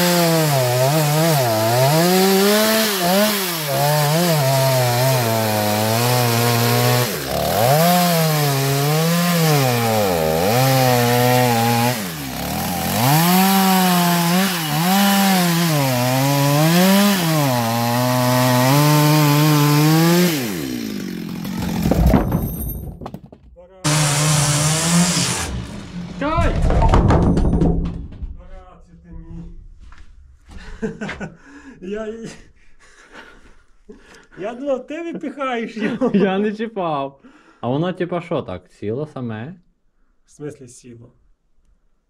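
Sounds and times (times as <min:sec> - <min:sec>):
chainsaw cutting wood: 0:00.0 - 0:23.1, 0:23.8 - 0:27.8.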